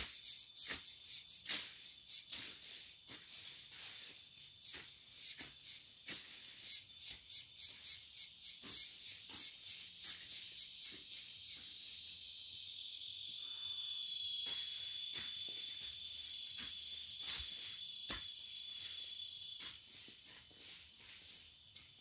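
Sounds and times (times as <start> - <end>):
insect high buzz: 0.0 - 22.0
insect pulsing chirp: 0.0 - 22.0.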